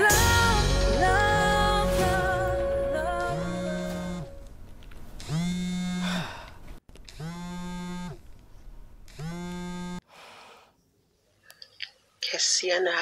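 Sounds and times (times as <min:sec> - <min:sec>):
person singing long held notes: 0:00.0 - 0:04.4.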